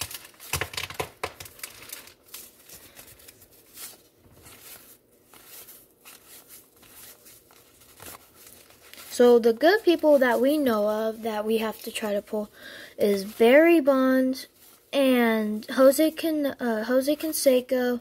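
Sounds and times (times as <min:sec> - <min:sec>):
cards rustling: 0:00.0 - 0:12.1
wax paper wrapper crinkling: 0:00.0 - 0:12.5.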